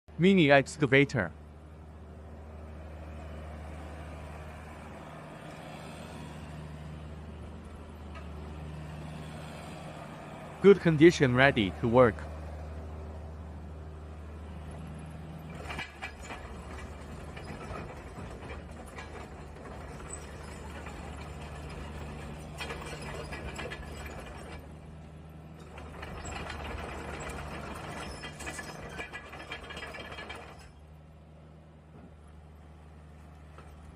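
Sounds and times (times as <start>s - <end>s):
diesel engine running: 0.2s - 33.9s
mechanical rattling and clatter: 15.4s - 24.7s, 25.5s - 30.9s.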